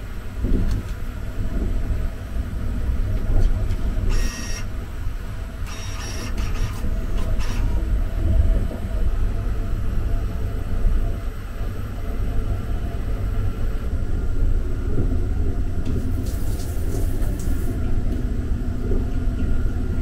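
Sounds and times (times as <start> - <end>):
train low rumble: 0.0 - 20.0
card reader mechanical whir: 3.7 - 4.7, 5.6 - 7.8.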